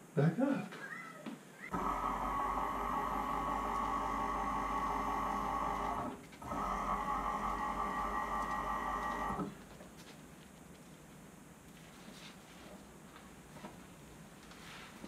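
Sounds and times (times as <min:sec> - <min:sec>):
stepper motor buzz: 0:01.7 - 0:09.6.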